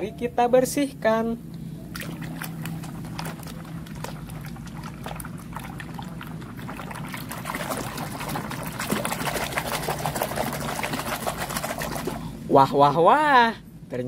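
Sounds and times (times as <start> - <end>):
water splashing in plastic basin: 1.9 - 12.3.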